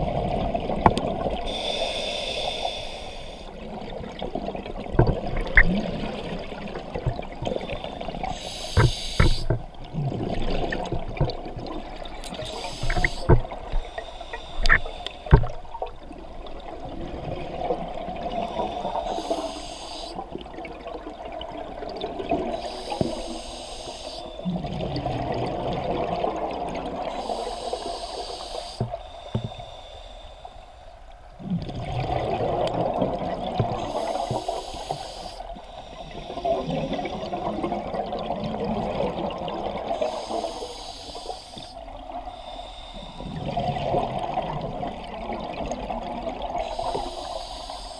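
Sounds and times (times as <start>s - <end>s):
exhaled air bubbling: 0.0s - 29.7s, 31.4s - 47.9s
regulator inhalation hiss: 1.4s - 3.6s, 7.5s - 9.6s, 12.2s - 15.5s, 18.5s - 20.3s, 22.5s - 24.5s, 27.1s - 31.0s, 33.8s - 37.4s, 39.9s - 43.4s, 46.6s - 47.9s.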